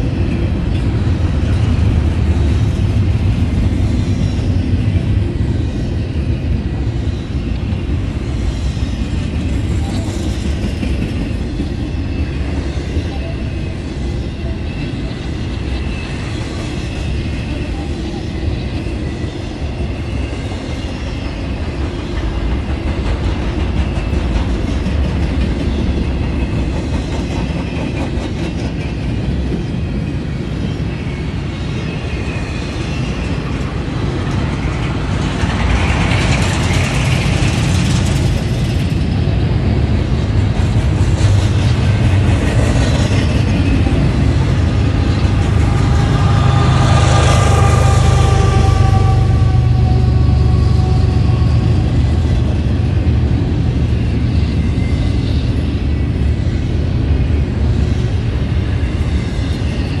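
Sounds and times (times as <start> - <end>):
locomotive engine drone: 0.0 - 28.1, 28.9 - 60.0
train wheels clicking over rail joints: 20.4 - 29.6, 33.2 - 54.3.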